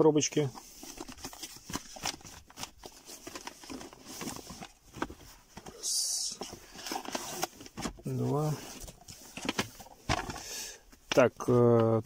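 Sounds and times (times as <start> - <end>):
cardboard boxes rustling and tapping: 0.9 - 10.5.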